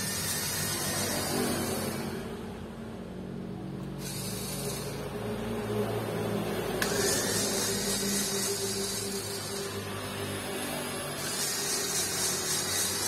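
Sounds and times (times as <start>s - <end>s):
electric screwdriver whirring: 0.0s - 2.1s, 3.9s - 5.1s, 6.8s - 10.1s, 10.9s - 13.0s.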